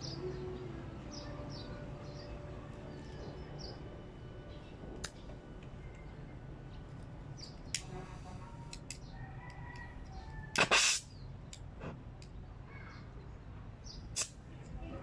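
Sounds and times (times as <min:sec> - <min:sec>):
welding arc hissing: 0:10.6 - 0:11.1.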